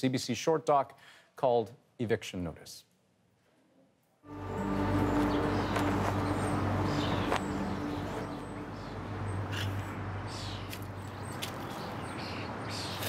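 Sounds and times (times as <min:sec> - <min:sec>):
low hum: 0:04.3 - 0:11.4
small birds chirping: 0:04.6 - 0:13.0.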